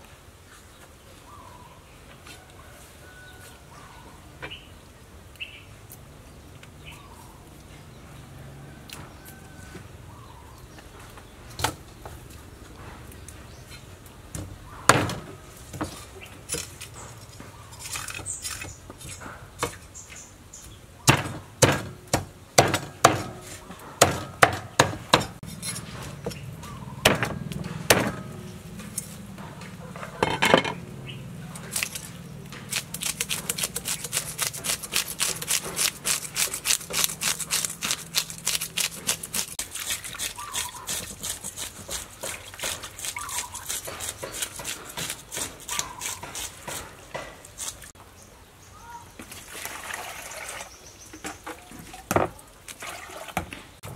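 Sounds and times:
cleaver chopping fish on board: 0:21.1 - 0:23.4, 0:24.0 - 0:25.4, 0:27.0 - 0:28.2
hands rubbing greens in bowl: 0:31.6 - 0:46.9.

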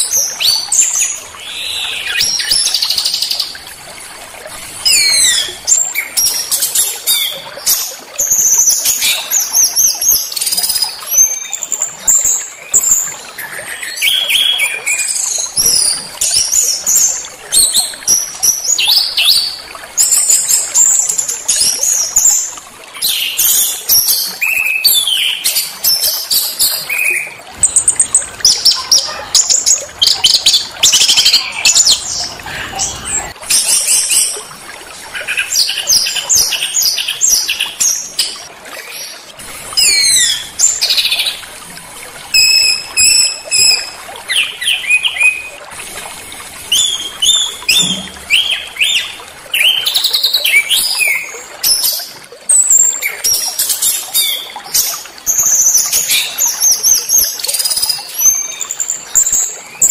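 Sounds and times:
songbirds chirping and trilling: 0:00.0 - 0:41.6.

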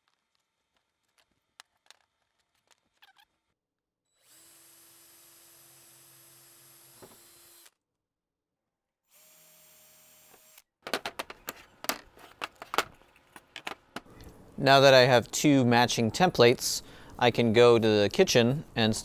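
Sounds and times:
cordless drill whirring: 0:04.1 - 0:07.8.

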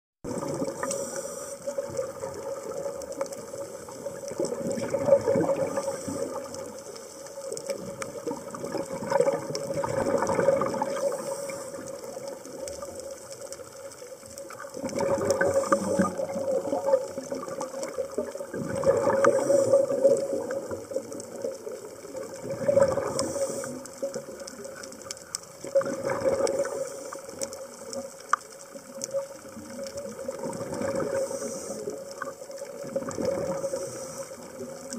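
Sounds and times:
bubbly regulator exhalation: 0:00.2 - 0:01.1, 0:04.2 - 0:06.6, 0:07.8 - 0:12.2, 0:14.8 - 0:21.4, 0:22.2 - 0:23.8, 0:25.7 - 0:26.9, 0:30.3 - 0:31.4, 0:32.8 - 0:34.0.

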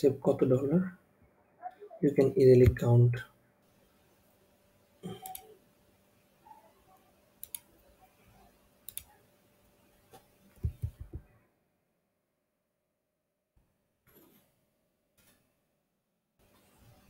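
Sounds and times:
computer mouse clicks: 0:05.0 - 0:05.5, 0:07.4 - 0:07.7, 0:08.9 - 0:09.2
keyboard key knocks: 0:10.6 - 0:11.2.

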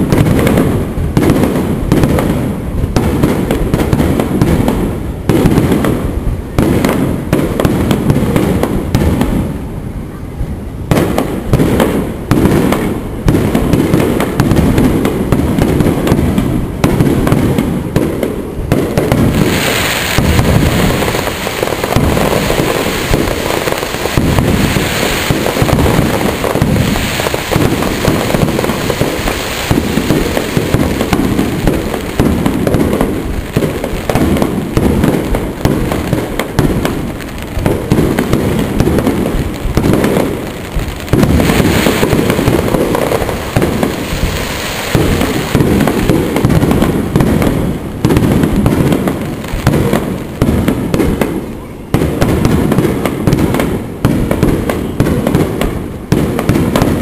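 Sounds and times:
firework shells bursting: 0:18.9 - 0:51.4.

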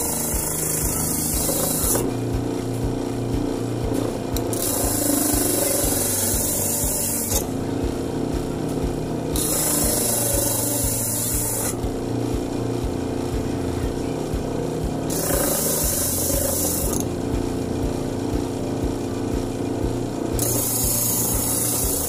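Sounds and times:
sanding disc rasping on wood: 0:00.0 - 0:02.5, 0:04.5 - 0:07.5, 0:09.3 - 0:12.0, 0:15.1 - 0:17.2, 0:20.3 - 0:22.0
electric motor humming: 0:00.0 - 0:22.0.

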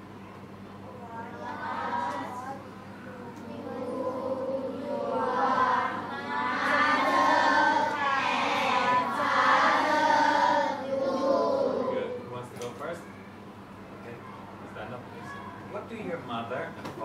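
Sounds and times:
children reciting in unison: 0:01.1 - 0:12.2.

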